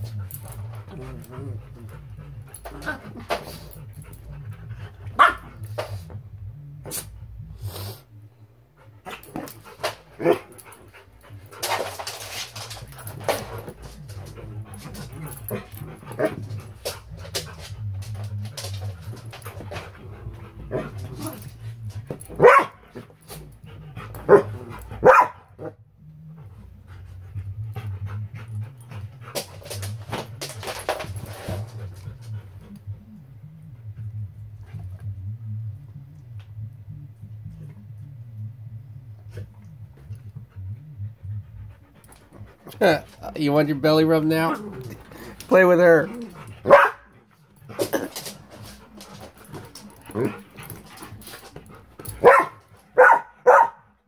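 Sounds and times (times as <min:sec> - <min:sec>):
dogs barking and yipping: 0:22.4 - 0:22.8, 0:24.3 - 0:25.5, 0:45.6 - 0:47.1, 0:52.1 - 0:53.8.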